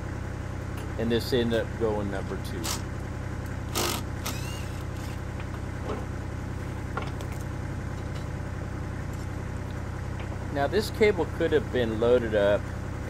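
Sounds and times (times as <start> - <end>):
machine humming: 0.0 - 13.0
rising whine: 3.7 - 8.3.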